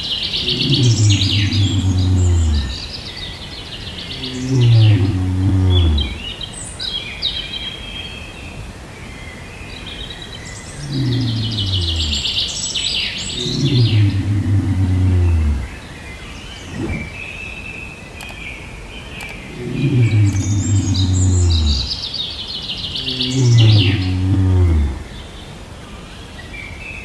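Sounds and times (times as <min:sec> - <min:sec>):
birds chirping and trilling: 0:00.0 - 0:27.0
lion growling call: 0:00.3 - 0:02.9, 0:04.0 - 0:06.4, 0:10.7 - 0:12.4, 0:13.2 - 0:15.9, 0:16.5 - 0:17.2, 0:19.4 - 0:22.0, 0:22.9 - 0:25.2.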